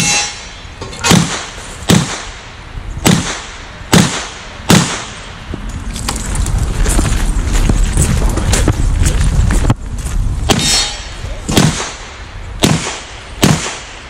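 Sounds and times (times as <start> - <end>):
revolver gunshots: 1.0 - 2.4, 3.0 - 5.3, 11.5 - 14.0.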